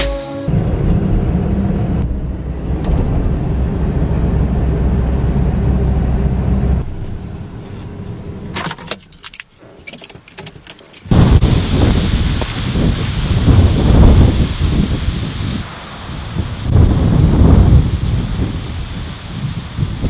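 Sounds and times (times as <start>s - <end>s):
truck engine and road rumble: 0.0s - 20.0s.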